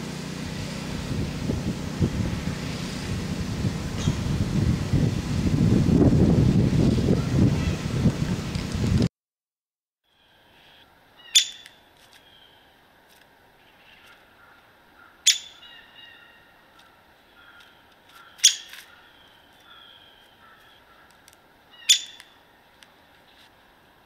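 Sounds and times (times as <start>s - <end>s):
woodpecker sharp short calls: 11.2s - 12.5s, 13.7s - 22.4s.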